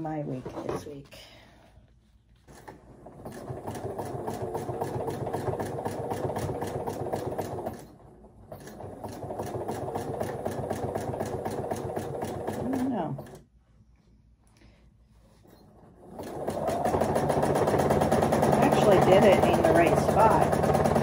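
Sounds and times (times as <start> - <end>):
sewing machine stitching: 2.5 - 13.5, 15.4 - 21.0.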